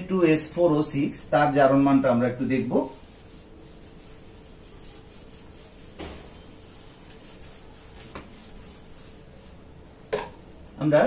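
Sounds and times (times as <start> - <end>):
eraser swishing on whiteboard: 2.6 - 9.7.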